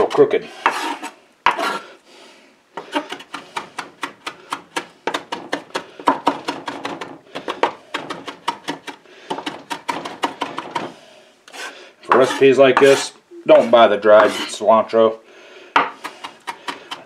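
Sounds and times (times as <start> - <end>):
knife chopping on wooden board: 3.0 - 10.9, 15.8 - 17.0.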